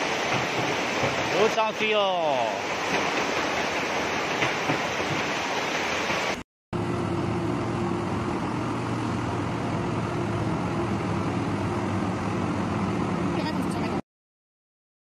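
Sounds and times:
floodwater rushing: 0.0s - 6.4s.

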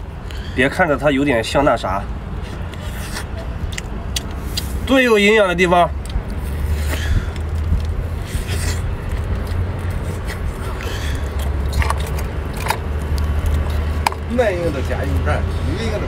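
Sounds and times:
steady low rumble: 2.0s - 16.0s
biting and chewing: 2.3s - 5.0s, 5.9s - 16.0s
small clicks and crunches: 7.3s - 14.3s.

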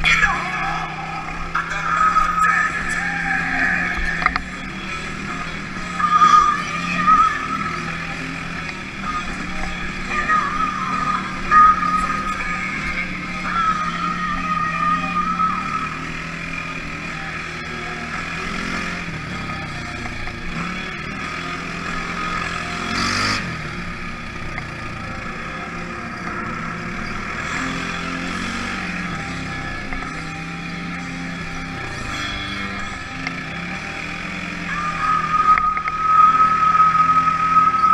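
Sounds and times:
loud rush of noise: 0.0s - 29.8s
engine running on dirt trail: 0.0s - 37.9s.

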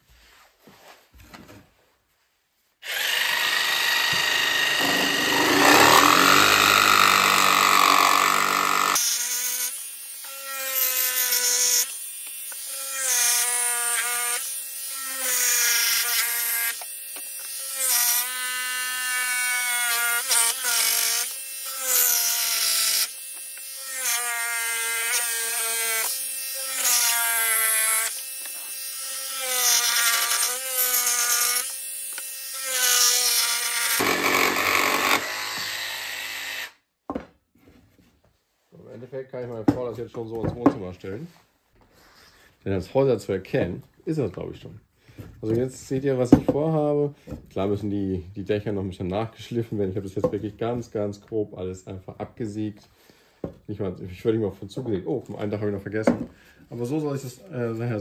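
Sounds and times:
jigsaw cutting wood: 2.8s - 36.8s.

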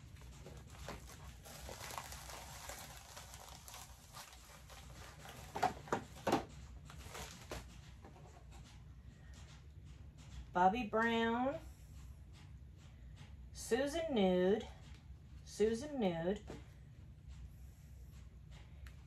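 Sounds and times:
plastic mailer bag crinkling: 0.0s - 7.7s.

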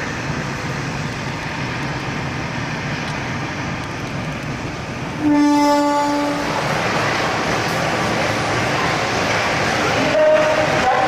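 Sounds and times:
train rumbling: 0.0s - 11.0s
locomotive horn: 5.2s - 6.6s, 10.0s - 11.0s.

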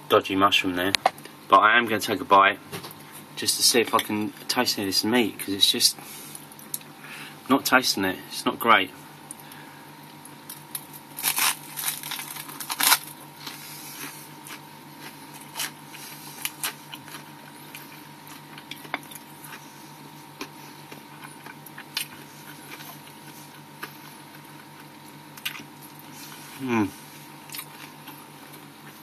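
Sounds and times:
steady low hum: 0.0s - 29.0s
person chewing crunchy bread: 9.4s - 29.0s.

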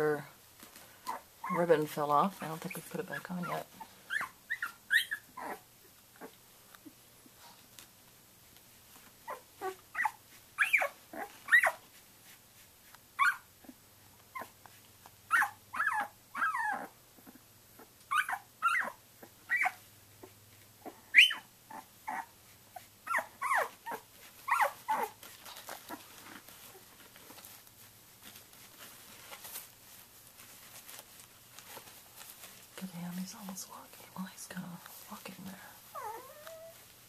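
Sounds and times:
puppy whimpering and squeaking: 1.0s - 1.8s, 2.4s - 6.4s, 9.2s - 12.0s, 13.2s - 14.7s, 15.3s - 27.4s, 35.9s - 36.9s.

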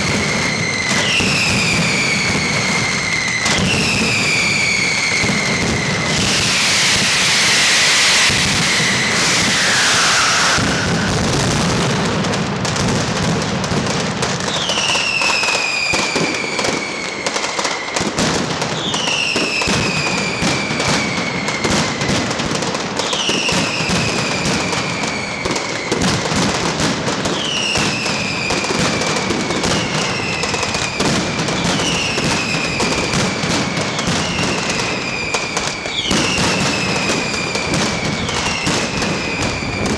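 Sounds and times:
firecrackers crackling densely: 0.0s - 39.9s
falling whistle: 0.4s - 11.2s
hissing screech gliding down: 6.2s - 11.2s.

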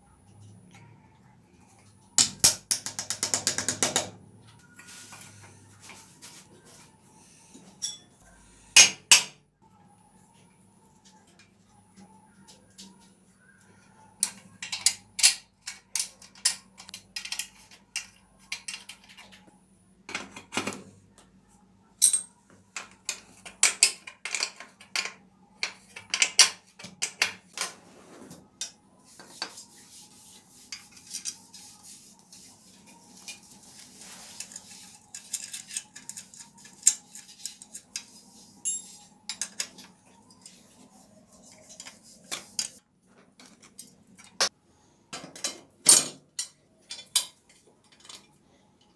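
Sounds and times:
steel tools clinking: 7.8s - 8.2s, 22.0s - 22.3s, 34.4s - 40.4s.

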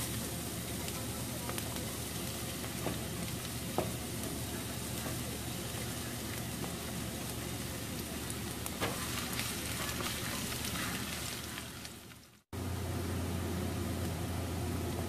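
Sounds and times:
onion sizzling in oil: 0.0s - 15.0s
spatula stirring: 0.9s - 12.0s.

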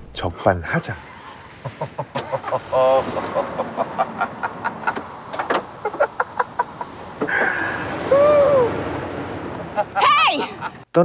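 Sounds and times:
man laughing: 1.6s - 5.1s, 5.8s - 8.7s, 9.7s - 10.8s.

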